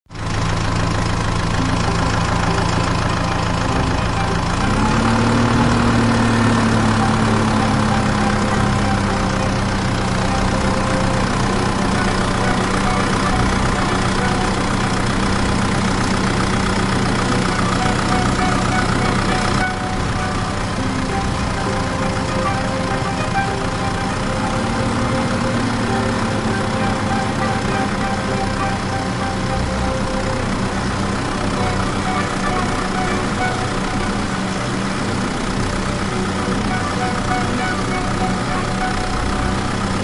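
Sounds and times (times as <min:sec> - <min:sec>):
diesel engine running and revving: 0:00.1 - 0:40.0.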